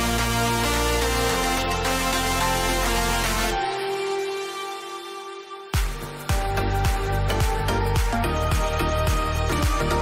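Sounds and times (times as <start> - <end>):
deep bass drop with beat: 5.8 - 10.0.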